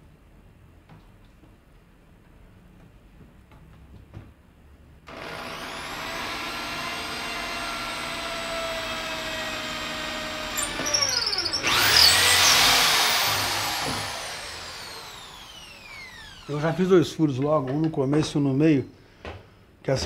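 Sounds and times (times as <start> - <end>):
electric drill boring into wood: 5.1 - 16.8.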